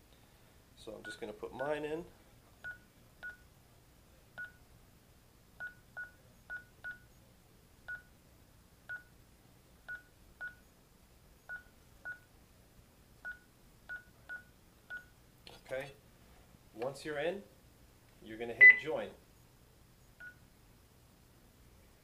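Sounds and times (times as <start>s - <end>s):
touchscreen key beeps: 18.6s - 18.8s.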